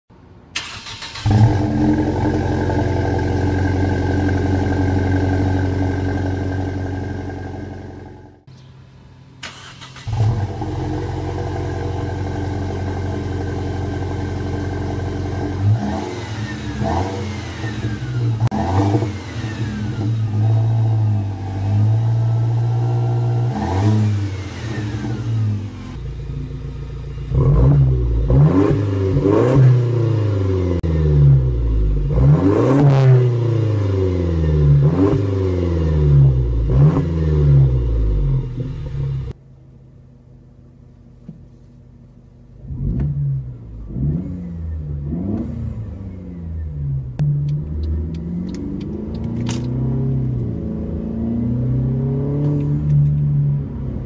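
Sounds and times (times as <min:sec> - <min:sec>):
car engine idling and revving: 0:00.5 - 0:54.0.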